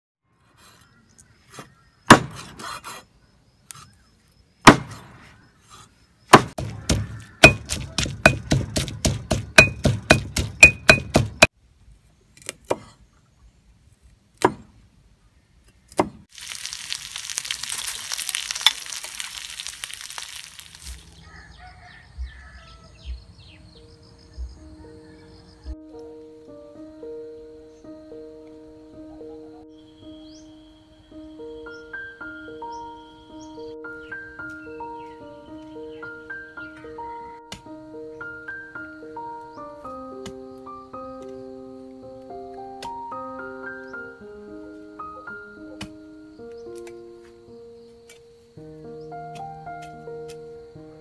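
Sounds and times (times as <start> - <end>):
cleaver chopping on wooden block: 2.1 - 3.0, 4.7 - 5.2, 6.3 - 11.5, 14.4 - 14.7, 15.9 - 16.2
faint music with low thumps: 22.2 - 30.4.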